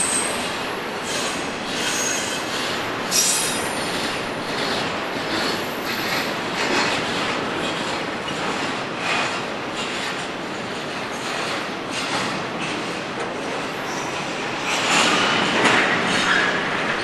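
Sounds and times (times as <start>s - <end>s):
high-pitched wheel squeals: 0.0s - 4.1s
train wheels on rails: 0.0s - 17.0s.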